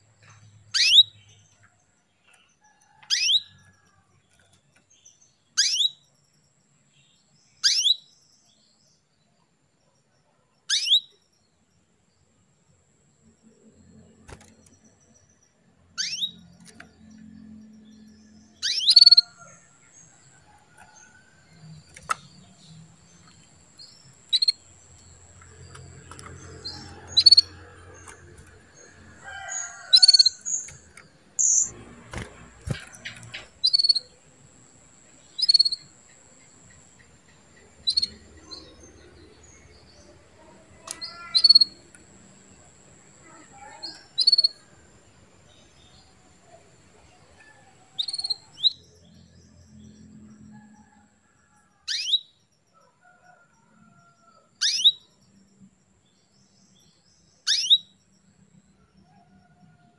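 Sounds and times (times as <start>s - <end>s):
canary chirping: 0.5s - 1.6s, 2.9s - 3.8s, 5.0s - 6.1s, 7.6s - 8.1s, 10.7s - 11.2s, 14.7s - 31.8s, 32.5s - 40.0s, 40.8s - 44.6s, 51.9s - 52.4s, 54.6s - 55.1s, 57.4s - 58.0s.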